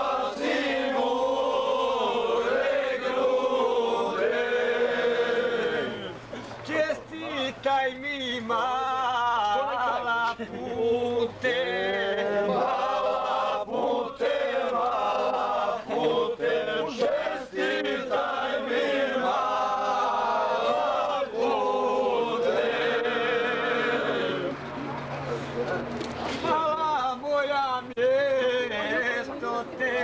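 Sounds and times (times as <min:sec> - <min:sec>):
men singing in chorus: 0:00.0 - 0:06.2, 0:06.8 - 0:24.5.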